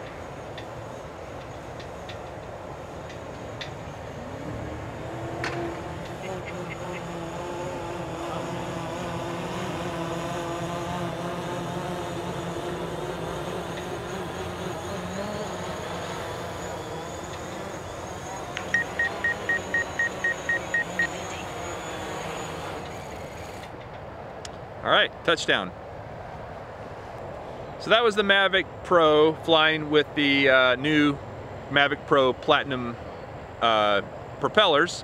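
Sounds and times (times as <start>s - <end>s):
drone propeller hum: 0.0s - 24.4s
short high beeps: 18.7s - 21.2s.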